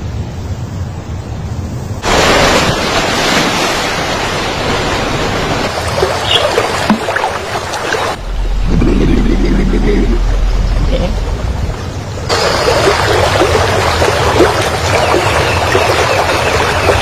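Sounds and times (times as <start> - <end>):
low wind-like rumble: 8.2 - 12.4.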